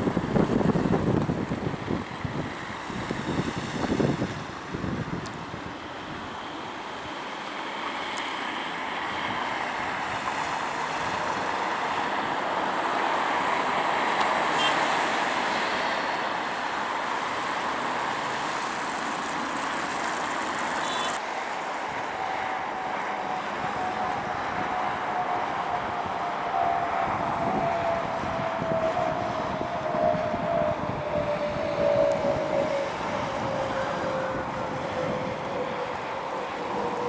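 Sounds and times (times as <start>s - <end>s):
wind buffeting microphone: 0.0s - 6.2s, 22.2s - 37.0s
jet engines roaring: 0.0s - 37.0s.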